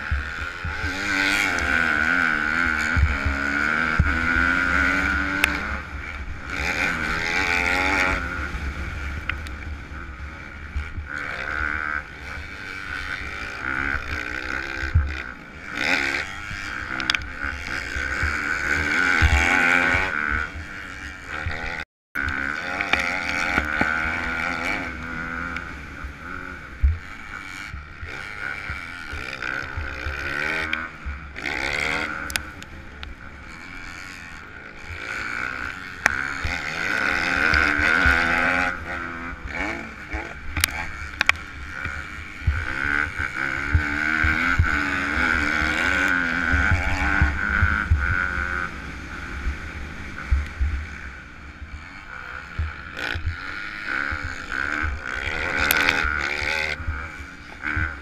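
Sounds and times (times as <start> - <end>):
motocross engine revving: 0.0 - 58.0.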